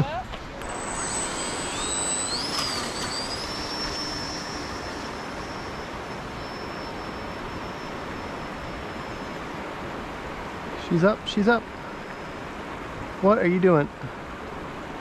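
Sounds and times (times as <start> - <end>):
steady rushing hiss: 0.5 - 15.0
model airplane motor whining: 0.6 - 10.7.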